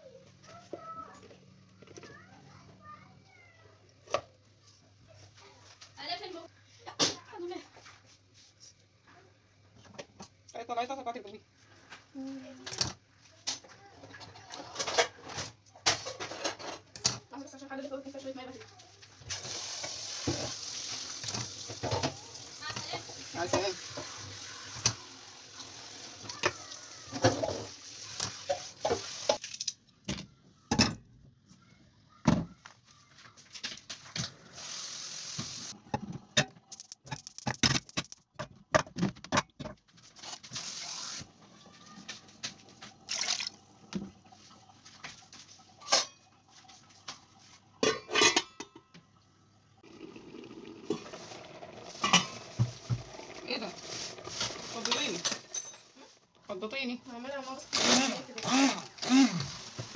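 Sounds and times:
meat rinsed in colander with water: 0:18.1 - 0:29.7, 0:33.9 - 0:35.8, 0:40.1 - 0:47.9, 0:49.8 - 0:55.2, 0:56.7 - 0:59.9.

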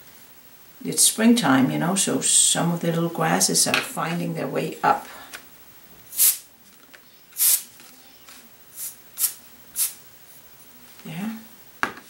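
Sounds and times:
air duster puffs hissing: 0:06.1 - 0:06.5, 0:07.3 - 0:10.0.

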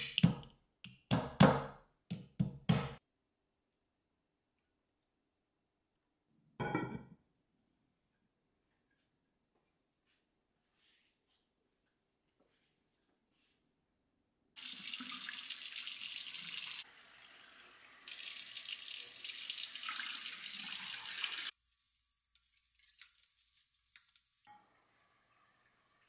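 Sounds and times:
faucet water splashing into bowl: 0:14.6 - 0:21.5.

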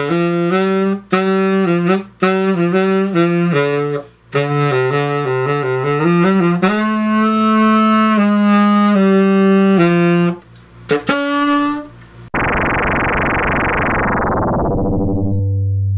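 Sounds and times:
tenor saxophone playing: 0:00.0 - 0:12.0
synthesizer music: 0:12.3 - 0:15.8.

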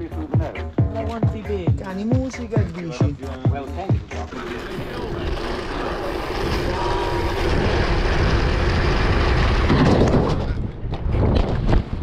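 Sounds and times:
bike tyres rolling on matting: 0:04.3 - 0:12.0
wind rushing over microphone: 0:04.8 - 0:12.0.

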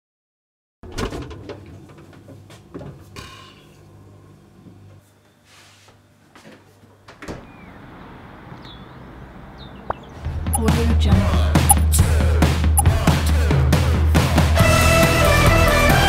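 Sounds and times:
refrigerator door opening: 0:00.9 - 0:01.8
refrigerator hum: 0:00.9 - 0:08.0.

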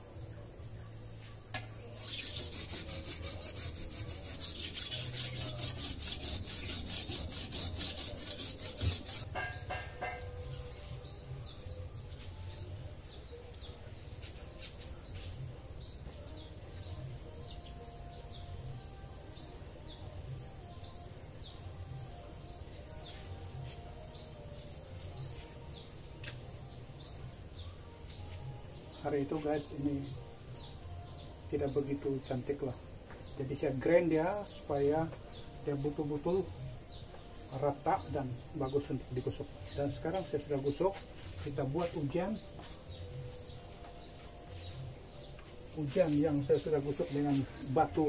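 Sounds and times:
bird chirping: 0:00.0 - 0:48.0
blade rubbing on whetstone: 0:02.0 - 0:09.3.

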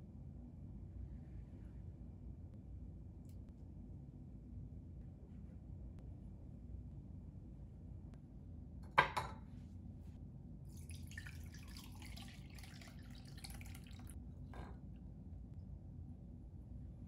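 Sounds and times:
broth pouring through strainer: 0:10.7 - 0:14.2.

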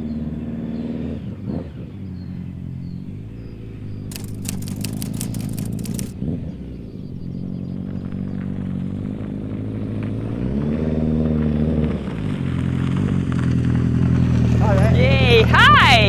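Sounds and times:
motorcycle engine running: 0:01.6 - 0:09.8
rapid sharp clicks: 0:04.1 - 0:06.2.

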